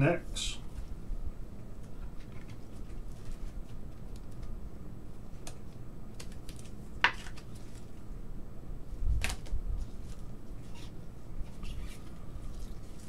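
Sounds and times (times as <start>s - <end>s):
cards clicking and rustling: 5.3s - 8.0s, 9.2s - 13.0s
sharp card snaps: 9.2s - 9.6s.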